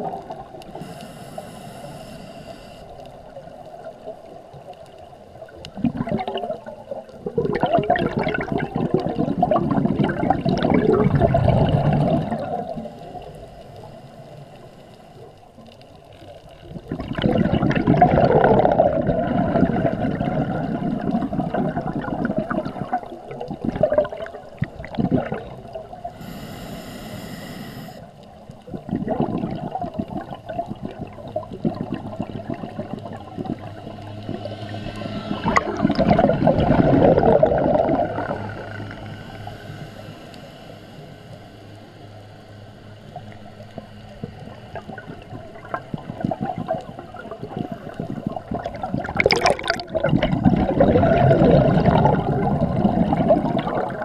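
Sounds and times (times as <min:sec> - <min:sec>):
steady hiss: 0:00.0 - 0:03.9, 0:11.8 - 0:16.0, 0:25.7 - 0:28.6, 0:38.5 - 0:44.6
underwater bubbles rushing: 0:00.0 - 0:40.5, 0:43.0 - 0:54.0.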